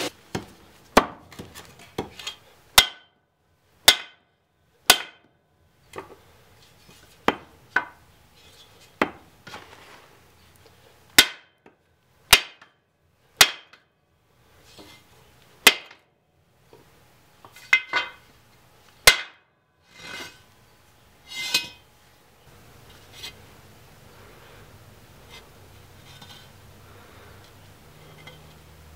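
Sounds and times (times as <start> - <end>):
tomahawk striking steel: 2.0 - 3.2, 3.8 - 4.3, 4.9 - 5.3, 11.2 - 11.6, 12.3 - 12.8, 13.4 - 13.8, 15.6 - 16.0, 19.0 - 19.5.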